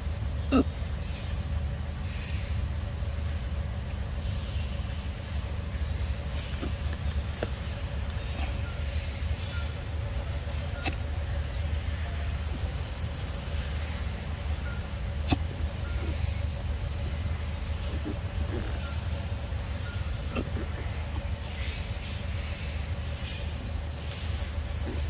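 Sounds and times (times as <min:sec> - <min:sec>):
insects buzzing: 0:00.0 - 0:25.0.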